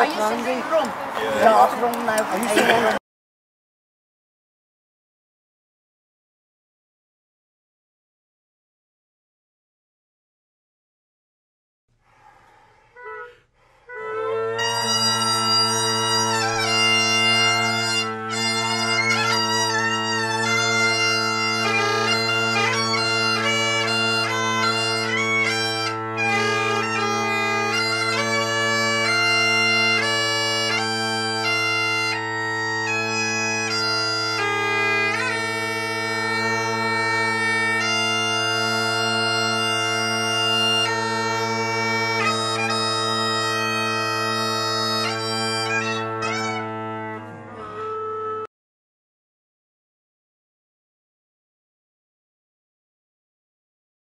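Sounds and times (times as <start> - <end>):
bagpipe playing: 13.0 - 48.5.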